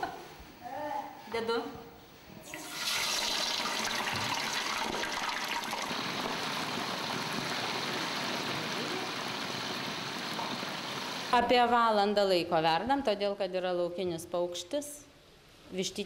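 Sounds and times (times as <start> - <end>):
water boiling in a pot: 2.4 - 11.4.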